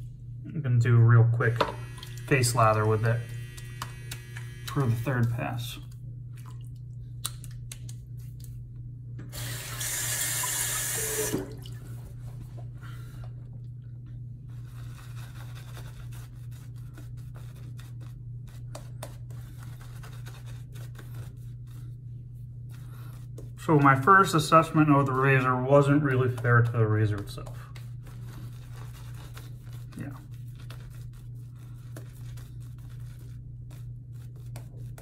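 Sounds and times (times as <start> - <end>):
steady low hum: 0.0 - 9.6, 11.0 - 35.0
water tap running: 1.6 - 3.8, 9.3 - 11.8.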